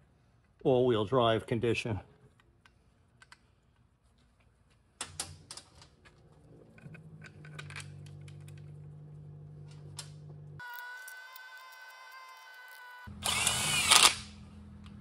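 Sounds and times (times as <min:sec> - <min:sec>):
low steady hum: 0:05.4 - 0:11.8.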